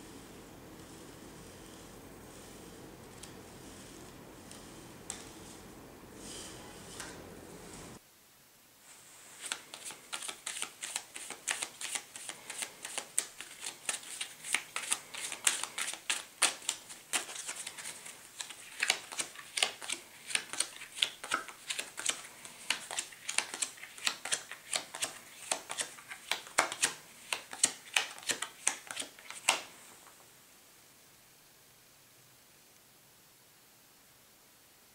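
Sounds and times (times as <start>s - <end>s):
playing cards snapping: 9.4s - 29.7s.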